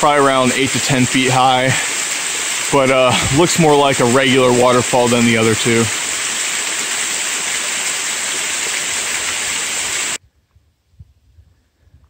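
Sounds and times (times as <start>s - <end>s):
small waterfall rushing: 0.0s - 10.2s.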